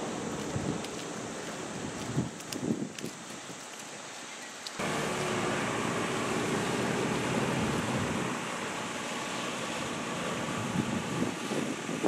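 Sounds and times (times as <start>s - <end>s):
wind: 0.0s - 12.0s
boat engine drone: 4.8s - 12.0s.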